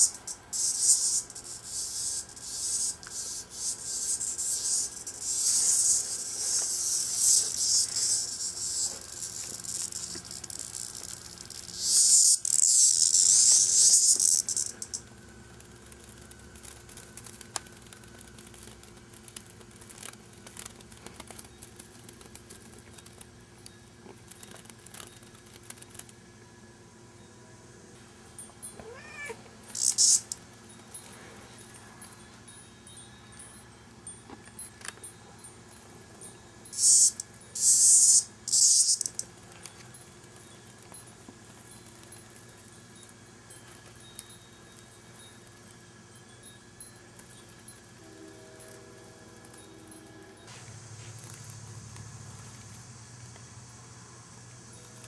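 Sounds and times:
cicada buzzing: 0:00.0 - 0:16.4, 0:29.7 - 0:30.5, 0:36.7 - 0:39.8.

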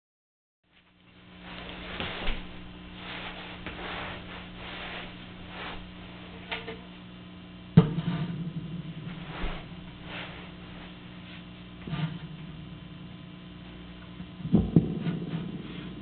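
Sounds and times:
low electrical hum: 0:00.6 - 0:16.0
rustling and handling noises: 0:00.7 - 0:06.9, 0:09.1 - 0:11.8.

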